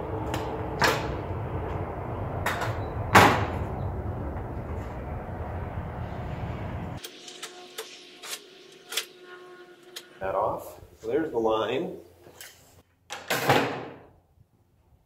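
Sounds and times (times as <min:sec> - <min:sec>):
low steady rumble: 0:00.0 - 0:07.0.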